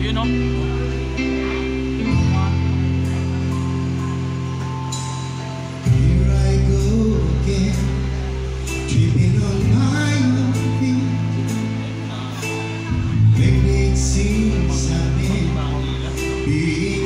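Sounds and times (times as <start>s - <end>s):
guitar and bass chords: 0.0s - 17.0s
person singing: 5.8s - 17.0s.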